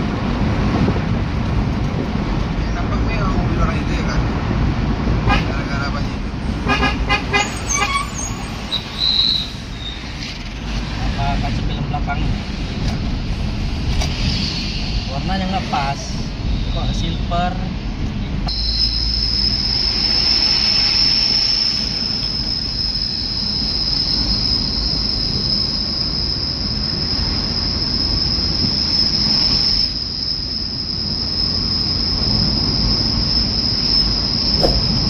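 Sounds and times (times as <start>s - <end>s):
car road and engine noise: 0.0s - 35.0s
high-pitched whine: 7.4s - 35.0s.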